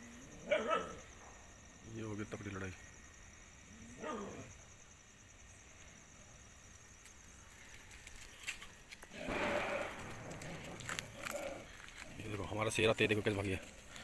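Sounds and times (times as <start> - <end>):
dog yelping: 0.4 - 1.0.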